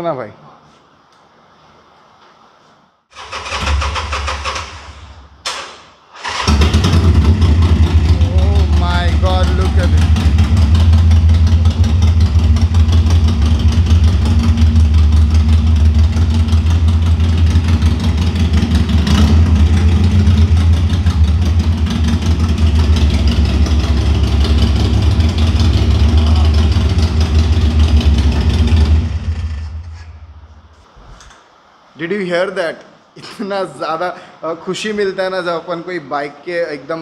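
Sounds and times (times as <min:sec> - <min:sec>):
motorcycle engine idling: 0:06.5 - 0:30.4.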